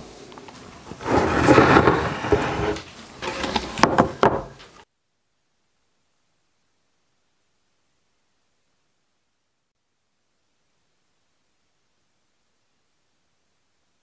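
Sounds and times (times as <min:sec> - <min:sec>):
wooden frames scraping on workbench: 0:00.9 - 0:04.8
wood-on-wood knocks: 0:03.8 - 0:04.6.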